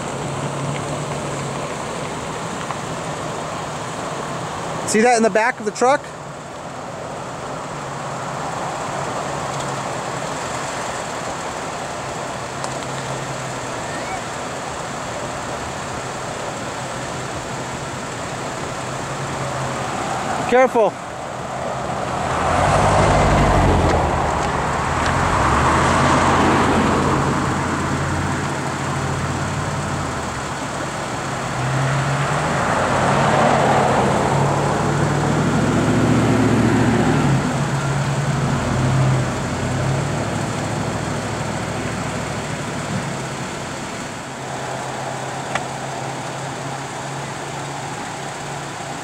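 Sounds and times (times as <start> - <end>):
low steady engine hum: 0.0 - 49.0
vehicles passing close by: 0.0 - 49.0.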